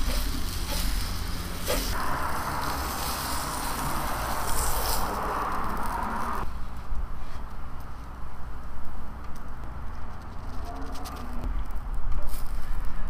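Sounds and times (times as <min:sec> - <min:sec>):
egg sizzling on griddle: 0:00.0 - 0:06.5
steady low rumble: 0:00.5 - 0:07.1.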